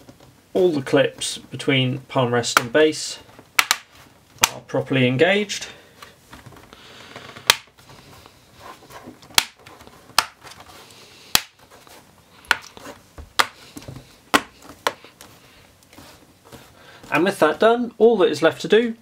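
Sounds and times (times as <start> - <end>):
plastic clips snapping into place: 3.6 - 4.6, 7.4 - 7.7.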